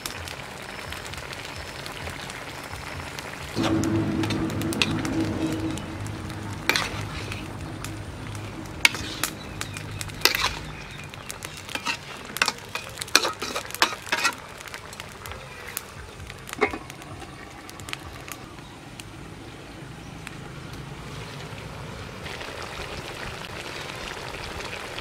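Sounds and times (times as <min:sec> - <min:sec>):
loud clank: 0:03.6 - 0:11.1
metal spatula scraping a wok: 0:03.6 - 0:14.4.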